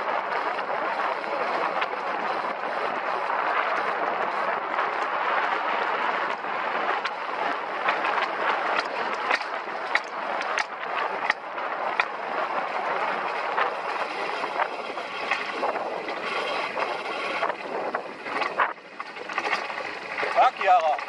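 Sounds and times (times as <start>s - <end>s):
coaster wheels rushing on rails: 0.0s - 21.0s
wind on microphone: 0.0s - 21.0s
sharp clacks along track: 6.2s - 21.0s.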